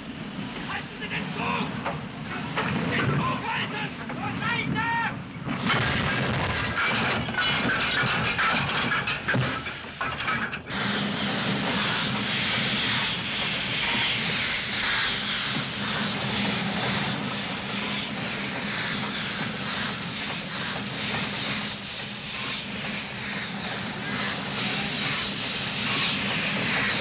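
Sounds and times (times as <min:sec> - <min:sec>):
steam locomotive running fast: 0:00.0 - 0:27.0.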